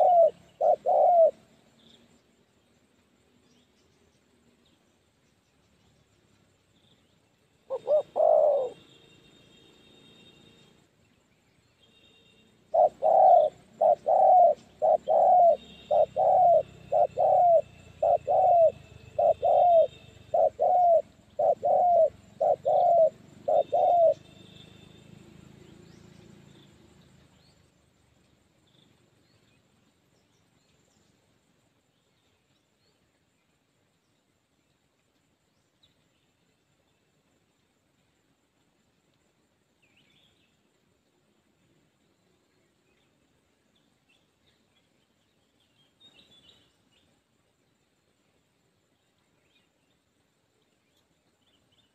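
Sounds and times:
doves cooing: 0.0 - 1.5, 7.7 - 8.9, 12.7 - 24.3.

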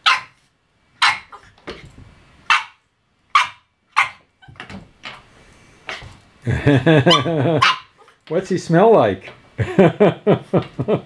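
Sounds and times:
puppy barking: 0.0 - 0.4, 1.0 - 1.5, 2.5 - 4.2, 7.0 - 8.1
quiet rustling: 4.4 - 6.5.

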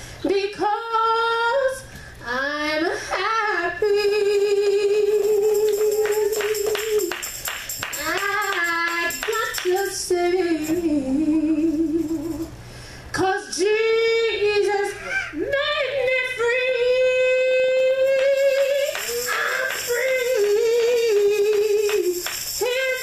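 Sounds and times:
woman singing: 0.2 - 7.2, 7.9 - 23.0
sharp percussive hits: 5.6 - 9.8, 18.3 - 23.0.

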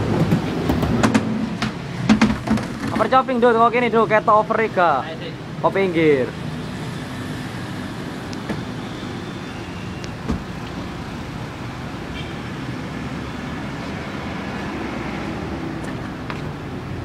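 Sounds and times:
road traffic noise: 0.0 - 17.0
thump: 0.3 - 3.0.

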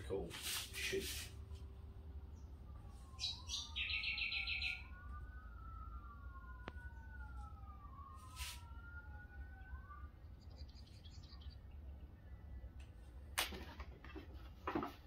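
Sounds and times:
distant wailing siren: 0.0 - 13.8
bird chirping and trilling: 3.1 - 5.0, 10.2 - 12.7.

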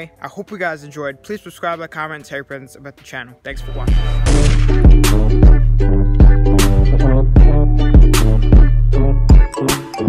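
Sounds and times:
music with heavy bass beat: 3.6 - 10.0.

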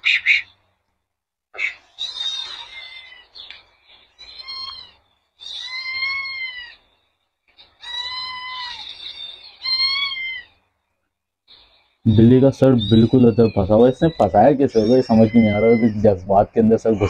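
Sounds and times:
cat meowing: 1.6 - 3.4, 4.2 - 6.8, 7.8 - 10.6, 12.8 - 16.3.

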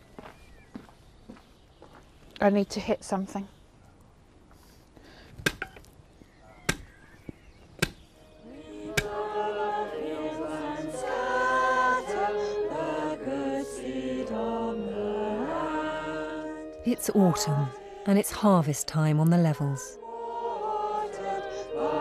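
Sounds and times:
digging tool striking ground: 5.3 - 5.9, 6.6 - 7.0, 7.8 - 8.1, 8.9 - 9.2
choral music with held notes: 8.1 - 22.0.

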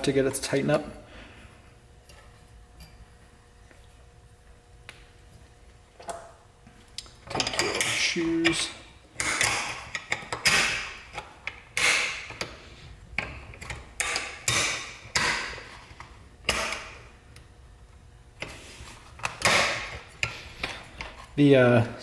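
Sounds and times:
metal parts clicking and clinking: 7.3 - 10.7.

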